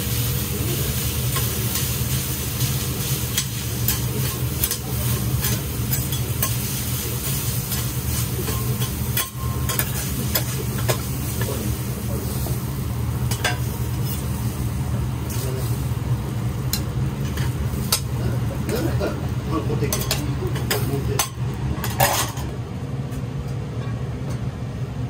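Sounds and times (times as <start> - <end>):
noodles sizzling on a griddle: 0.0 - 22.5
steady low hum: 0.0 - 25.0
metal spatulas clacking on griddle: 7.7 - 11.0, 19.9 - 22.4.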